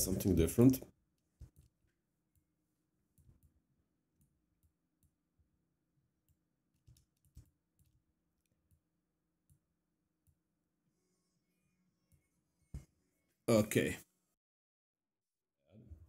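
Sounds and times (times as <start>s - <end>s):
computer mouse clicks: 6.3s - 8.8s.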